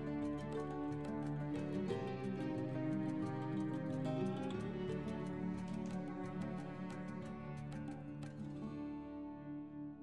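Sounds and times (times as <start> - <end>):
gentle instrumental music: 0.0 - 10.0.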